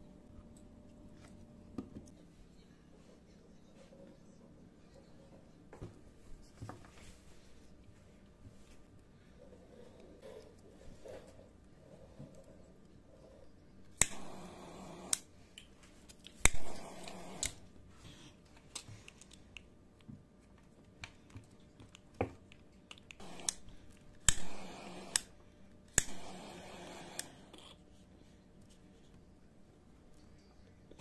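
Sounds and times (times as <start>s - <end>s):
lighter flame hissing: 14.0s - 15.3s, 16.4s - 17.7s, 23.2s - 27.5s.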